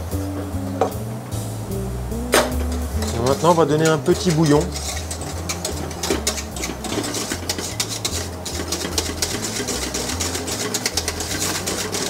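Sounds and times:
whisk scraping metal saucepan: 2.9 - 12.0.

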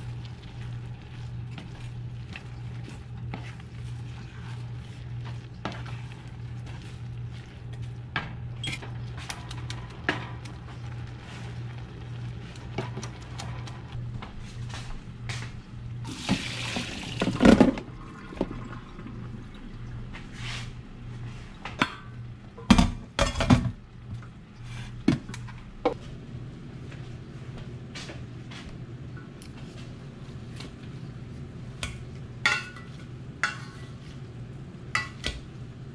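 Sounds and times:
wooden spoon scraping skillet: 0.0 - 14.0
water pouring into colander: 16.0 - 20.0.

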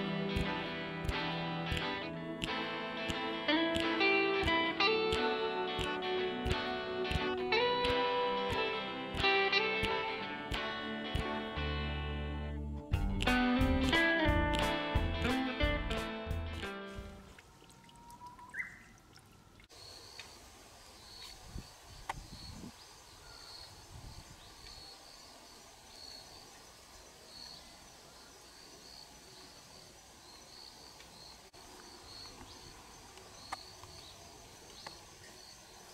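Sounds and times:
small high chirp: 17.9 - 19.0.

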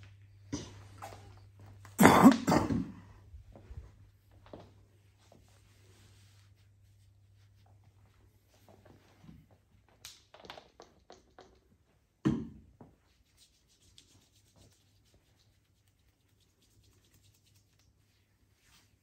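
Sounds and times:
hands rubbing skin: 13.0 - 19.0.

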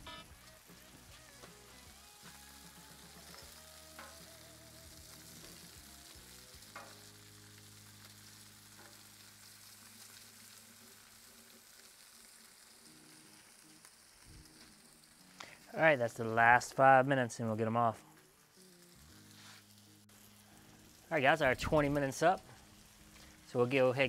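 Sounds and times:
faint sizzling on griddle: 0.0 - 24.0.

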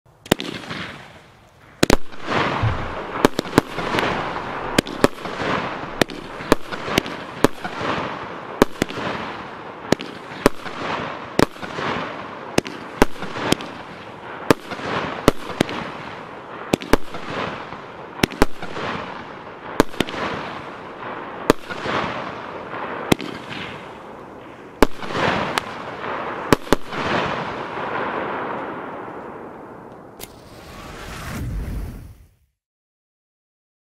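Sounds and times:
firework bangs: 0.2 - 32.3.

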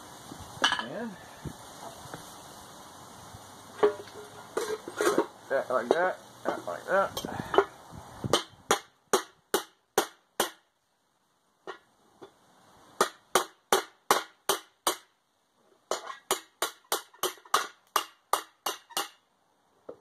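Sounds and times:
hammer striking steel pipe: 13.0 - 15.1, 15.9 - 19.2.

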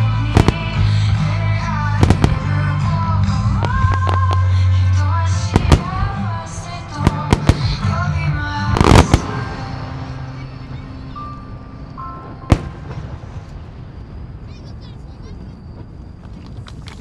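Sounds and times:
music with sustained melody: 0.0 - 13.9
fireworks bursting: 0.0 - 17.0.

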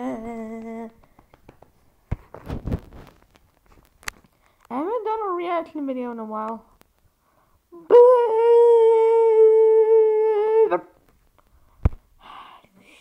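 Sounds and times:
person humming a long note: 0.0 - 1.0, 7.8 - 10.8.

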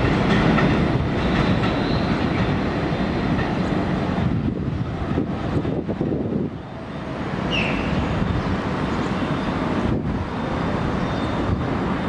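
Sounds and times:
street traffic noise: 0.0 - 12.0
subway train rumbling on steel track: 0.0 - 12.0
brief high squeal: 7.5 - 8.1.

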